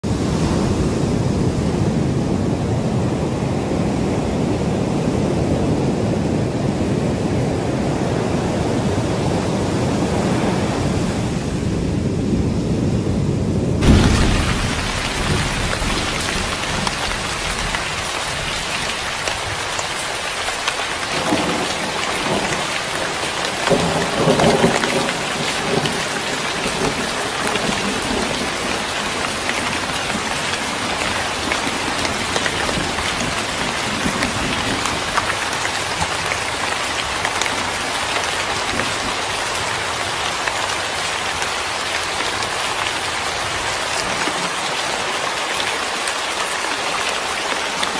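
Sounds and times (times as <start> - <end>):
heavy rain: 0.0 - 47.9
thunder rolling: 0.2 - 37.9.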